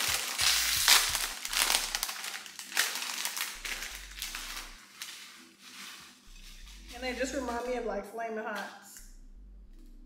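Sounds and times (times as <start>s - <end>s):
plastic snack bag crinkling: 0.0s - 7.6s.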